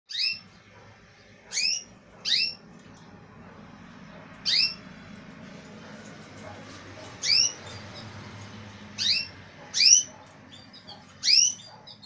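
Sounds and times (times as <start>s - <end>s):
canary calling: 0.1s - 12.0s.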